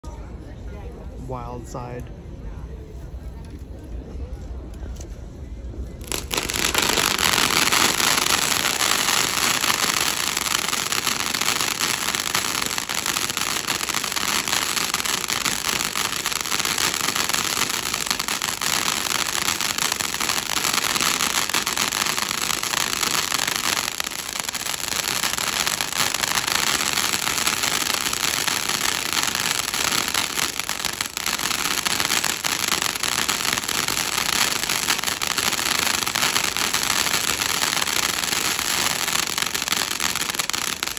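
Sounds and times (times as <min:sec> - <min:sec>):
firework fountain hissing and crackling: 0:06.0 - 0:40.9.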